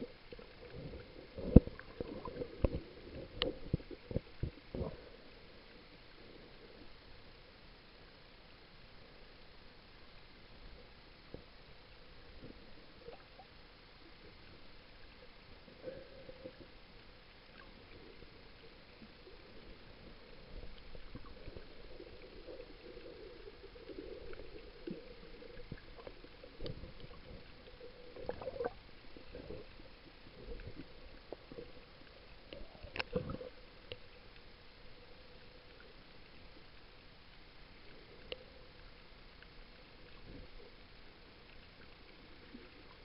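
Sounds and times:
muffled underwater water wash: 0.0s - 43.0s
underwater knocks and clicks: 0.7s - 5.0s, 32.5s - 34.0s.

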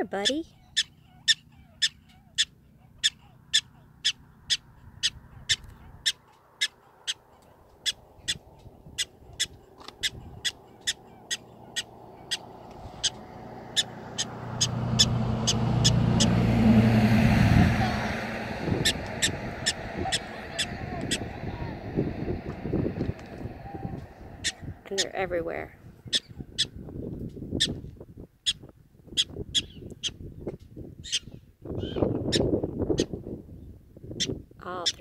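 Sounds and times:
prairie dog alarm chirps: 0.1s - 16.4s, 18.7s - 21.7s, 23.2s - 25.3s, 26.0s - 26.8s, 28.4s - 30.2s, 31.0s - 33.1s
low steady hum: 10.2s - 26.1s.

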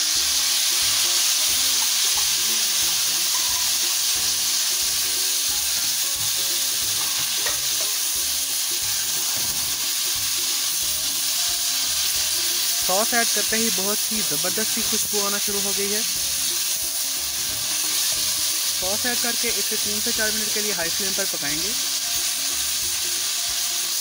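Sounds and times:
food sizzling in a frying pan: 0.0s - 24.0s
spatula scraping a pan: 6.8s - 8.1s.

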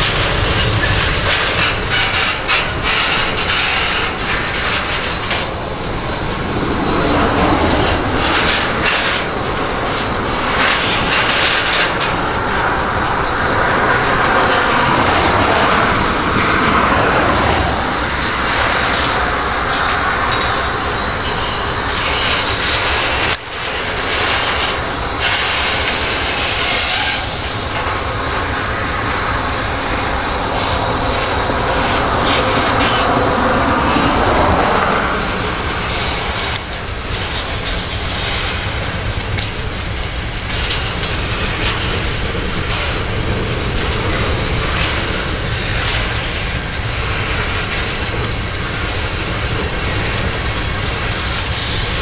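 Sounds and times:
freight train rumbling on rails: 0.0s - 52.0s
wind buffeting microphone: 0.0s - 52.0s.

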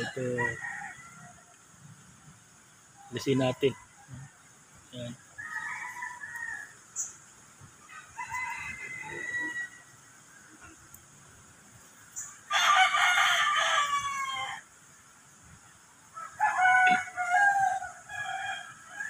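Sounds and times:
rooster crowing: 0.0s - 1.6s, 5.4s - 6.8s, 7.8s - 10.4s, 12.5s - 14.7s, 16.1s - 19.0s.

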